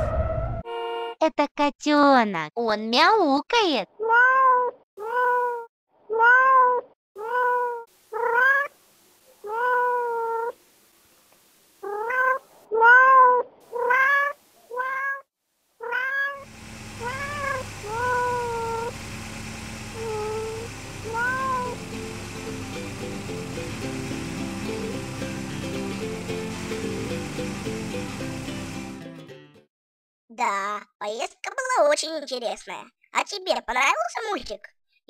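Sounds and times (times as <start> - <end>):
kitten meowing: 4.0 - 8.7, 9.5 - 10.5, 11.8 - 15.2, 15.8 - 16.4
background music: 21.9 - 29.6.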